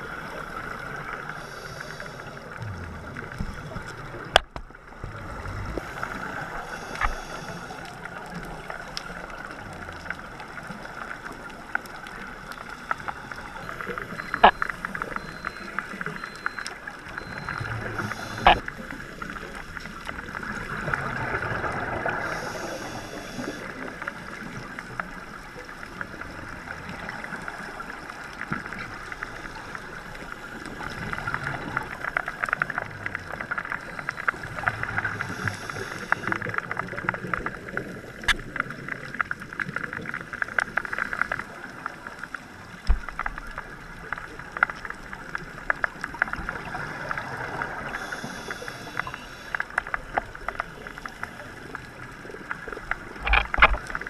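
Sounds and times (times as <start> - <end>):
bubbling exhaled breath: 0.0 - 4.4
underwater crackle of clicks: 0.0 - 54.0.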